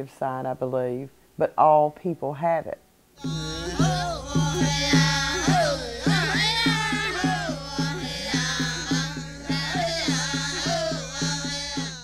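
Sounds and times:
sliding pitch melody: 3.2s - 10.8s
music with quick drumbeat: 3.2s - 12.0s.

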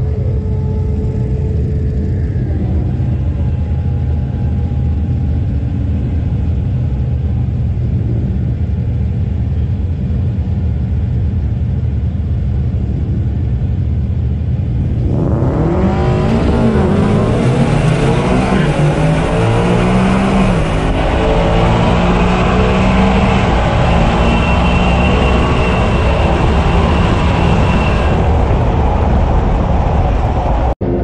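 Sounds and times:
engine revving at full throttle: 14.8s - 28.8s.

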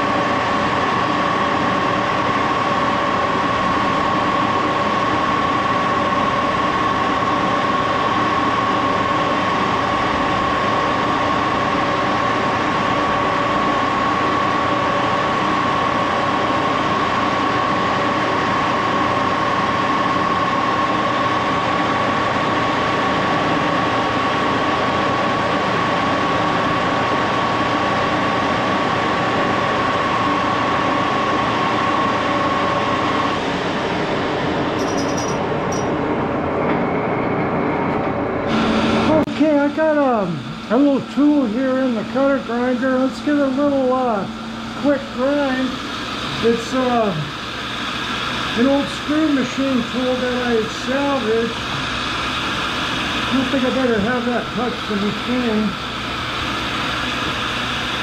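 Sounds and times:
lathe gears whining: 28.7s - 58.0s.

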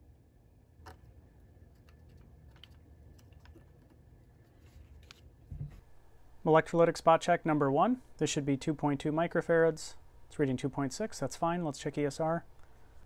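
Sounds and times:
low steady hum: 0.0s - 13.0s
soft thump: 5.5s - 5.8s.

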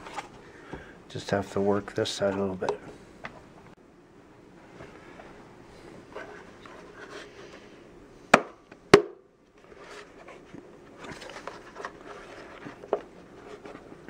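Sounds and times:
plastic rubbing and scraping: 9.6s - 14.0s.

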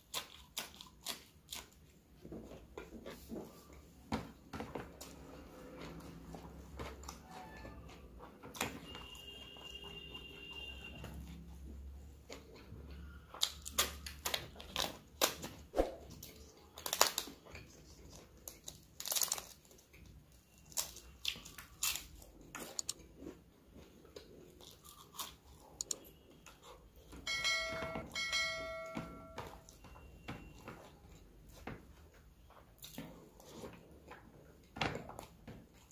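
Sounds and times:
crisp cracker crunching: 0.0s - 1.9s, 16.2s - 23.2s, 24.0s - 26.0s
chewing: 16.2s - 27.1s.

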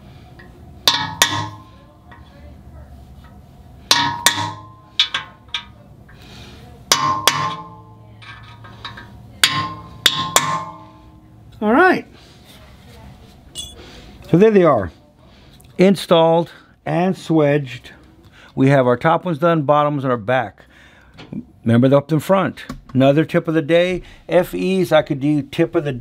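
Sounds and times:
hammer striking metal punch: 0.8s - 1.8s, 3.9s - 5.7s, 6.9s - 11.2s.

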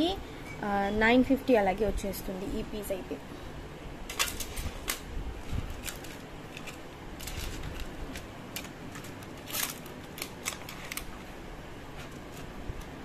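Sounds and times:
plastic packets clicking and crinkling: 5.7s - 11.2s.

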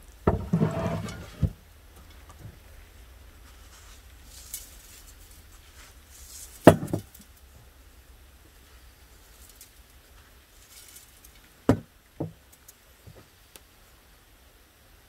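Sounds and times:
salt pattering: 1.9s - 11.7s
salad greens rustling: 2.1s - 7.6s, 8.5s - 11.7s.

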